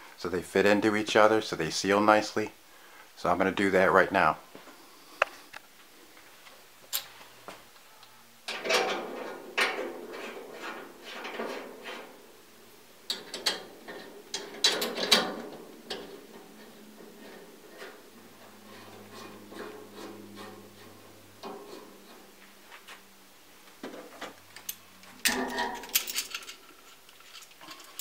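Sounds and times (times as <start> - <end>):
metal gas line clicking and rattling: 8.5 - 23.0, 23.7 - 28.0.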